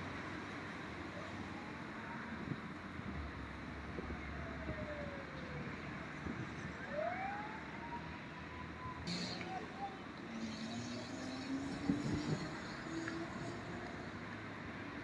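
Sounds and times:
road noise: 0:00.0 - 0:15.0
emergency vehicle siren wailing: 0:01.0 - 0:14.2.

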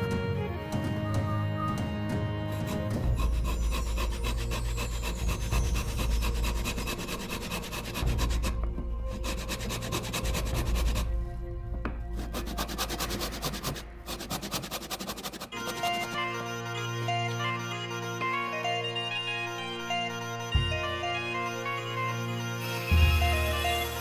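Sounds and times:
pull saw cutting wood: 0:02.4 - 0:11.1, 0:12.2 - 0:16.4.

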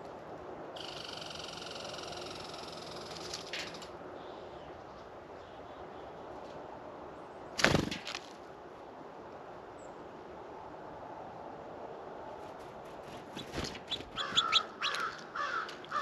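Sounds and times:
outdoor background hiss: 0:00.0 - 0:16.0
faint high buzzing tone: 0:00.8 - 0:03.9.

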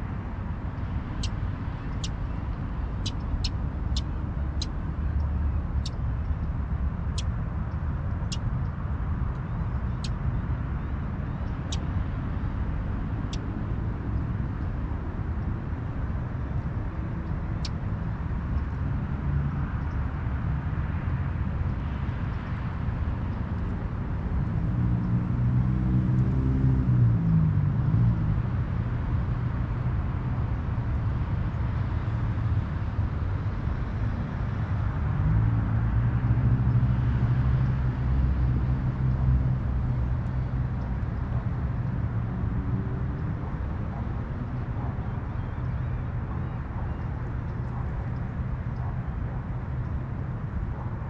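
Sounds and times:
vehicle passing by: 0:24.2 - 0:30.2, 0:31.7 - 0:45.4.

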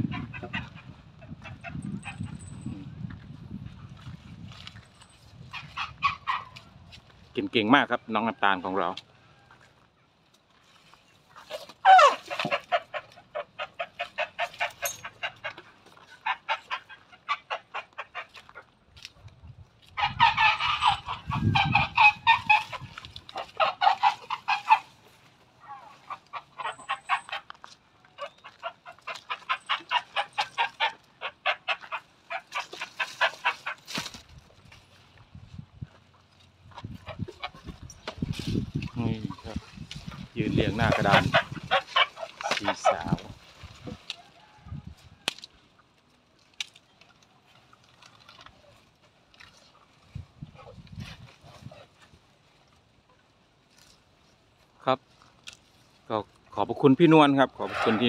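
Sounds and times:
chickens clucking and cackling: 0:00.0 - 0:03.1, 0:05.4 - 0:06.9, 0:11.0 - 0:18.9, 0:19.8 - 0:34.2, 0:35.4 - 0:46.0.

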